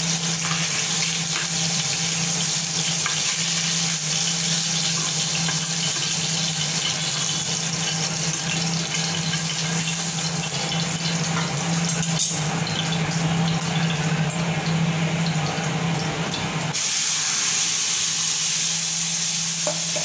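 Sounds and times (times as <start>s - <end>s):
fish sizzling in hot oil: 0.0s - 15.9s, 16.7s - 20.0s.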